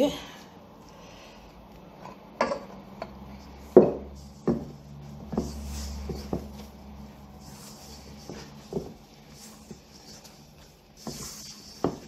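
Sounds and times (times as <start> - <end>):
knocks and thuds against bowls: 2.4 - 6.6.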